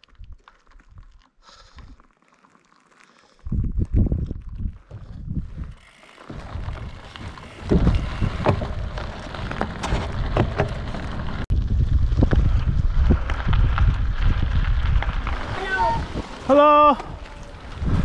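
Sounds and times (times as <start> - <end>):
bike rattling over stones: 0.0 - 18.0
wind buffeting microphone: 3.4 - 18.0
tyres crunching on gravel: 4.0 - 18.0.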